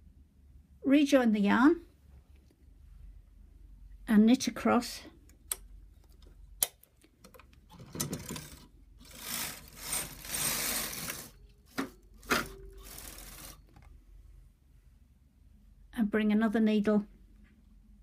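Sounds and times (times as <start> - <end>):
knitting machine carriage swishing: 7.7 - 11.4, 12.2 - 13.9.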